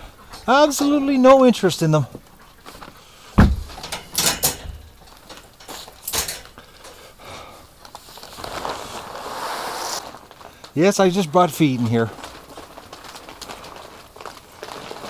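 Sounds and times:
gate and door knocking and rattling: 3.4s - 5.1s
rustling hiss: 7.7s - 10.7s.

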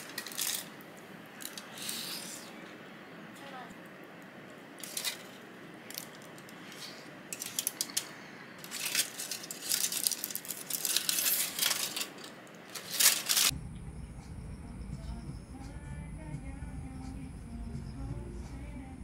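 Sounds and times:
foil wrapper crinkling: 0.0s - 0.8s, 7.3s - 13.5s.

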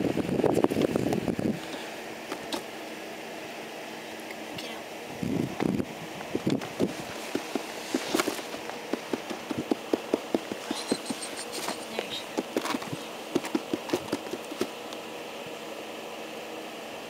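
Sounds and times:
animal scratching in plastic carrier: 6.6s - 14.8s
high chirps: 10.5s - 12.4s.

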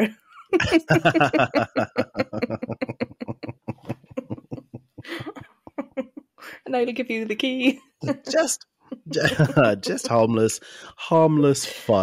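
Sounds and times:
person laughing: 0.4s - 6.2s, 8.0s - 10.6s
breathy giggle: 0.5s - 6.2s.

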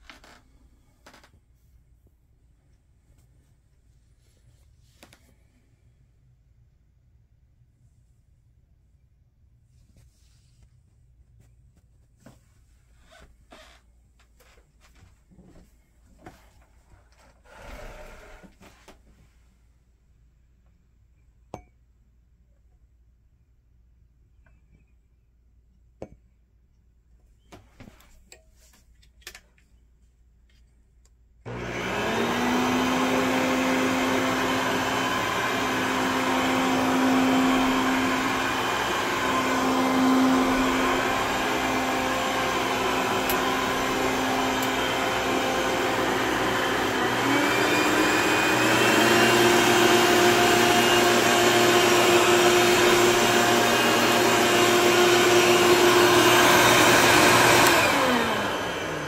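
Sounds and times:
vacuum cleaner motor whine: 17.2s - 18.7s, 31.5s - 59.0s.

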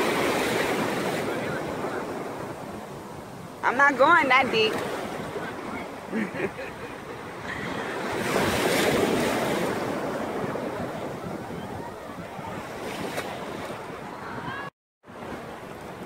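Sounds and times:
ocean surf washing: 0.0s - 16.0s
wind on microphone: 6.8s - 16.0s.

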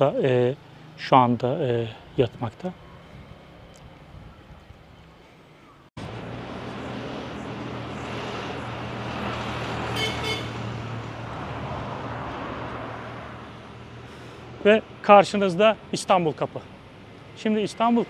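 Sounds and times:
car passing by: 6.0s - 14.6s.

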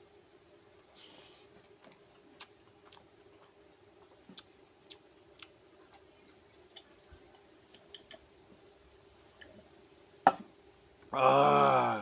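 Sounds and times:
faint steady hum: 0.0s - 12.0s
mouth clicks and smacks chewing: 1.8s - 8.2s.

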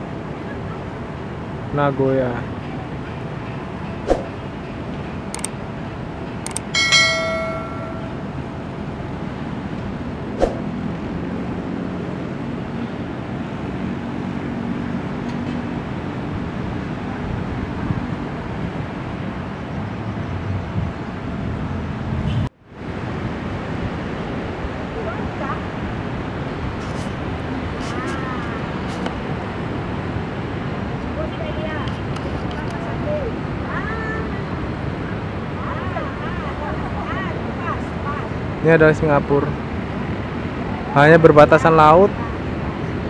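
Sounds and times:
city traffic rumble: 0.0s - 43.0s
sharp clicks: 5.4s - 5.6s, 6.5s - 6.7s
short ringing tone: 6.5s - 8.4s.

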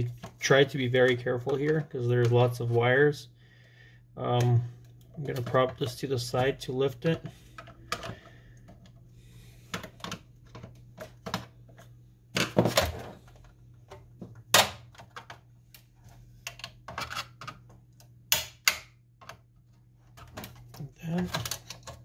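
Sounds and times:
printer parts clicking and rattling: 16.4s - 22.0s.

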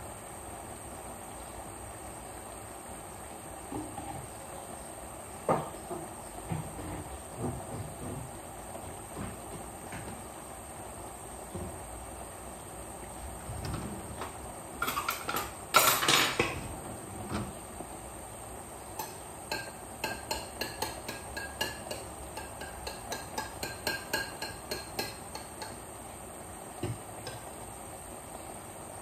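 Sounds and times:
metal utensil clattering on pot: 14.8s - 16.6s, 19.0s - 25.8s
light ringing taps on pot: 19.0s - 25.8s.

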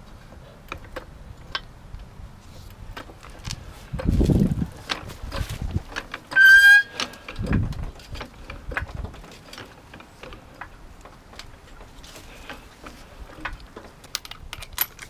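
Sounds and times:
high squeak: 6.3s - 7.1s.

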